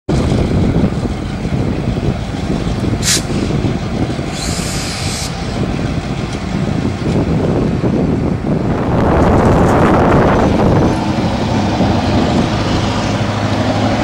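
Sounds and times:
diesel locomotive rumbling: 0:00.1 - 0:14.0
air brake hisses: 0:03.0 - 0:03.4.

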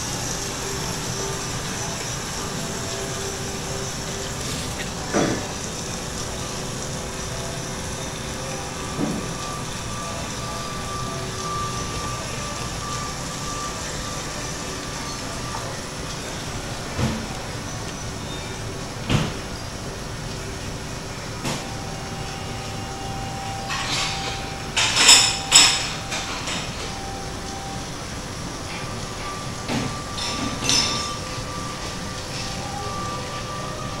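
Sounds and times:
rain-like hiss: 0:00.0 - 0:34.0
faint held tone: 0:06.2 - 0:16.4, 0:20.4 - 0:34.0.

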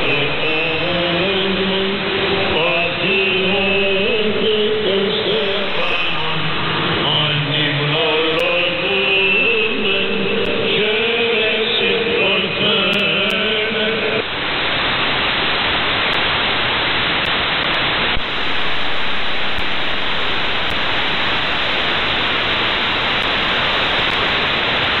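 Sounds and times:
shortwave radio static: 0:00.0 - 0:11.1, 0:11.8 - 0:25.0
chant on radio: 0:00.0 - 0:14.3.

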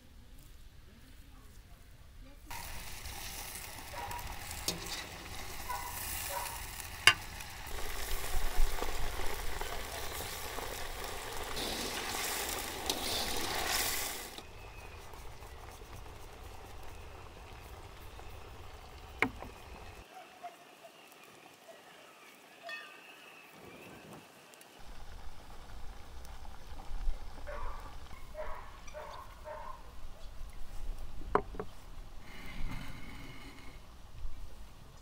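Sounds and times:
food sizzling in a pan: 0:02.5 - 0:29.4.

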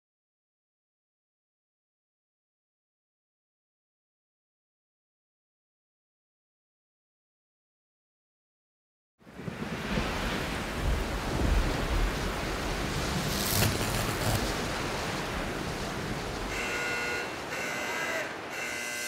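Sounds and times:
gusting wind: 0:09.2 - 0:18.6
hail and rain pelting down: 0:09.4 - 0:18.8.

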